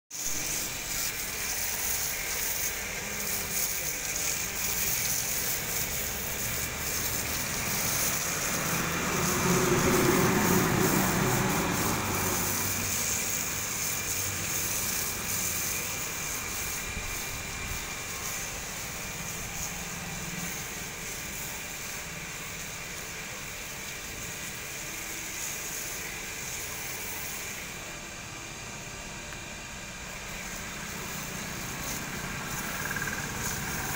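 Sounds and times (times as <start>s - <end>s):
pressure pump running: 0.1s - 33.9s
spray gun hiss: 0.1s - 33.9s
passing road vehicle: 7.6s - 13.2s.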